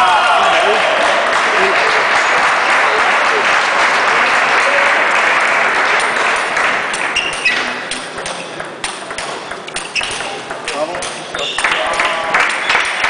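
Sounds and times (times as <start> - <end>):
applause: 0.0 - 7.2, 11.6 - 13.0
table tennis ball clicks: 6.9 - 12.6.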